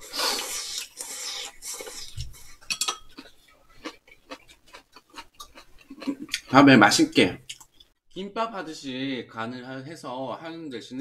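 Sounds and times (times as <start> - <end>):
person slurping food: 0.0 - 4.5
utensils clinking on bowls: 2.7 - 3.2.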